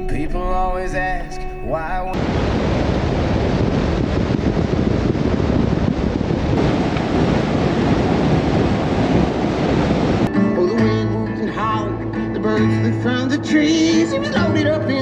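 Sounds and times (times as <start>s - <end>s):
wind buffeting microphone: 2.2s - 10.3s.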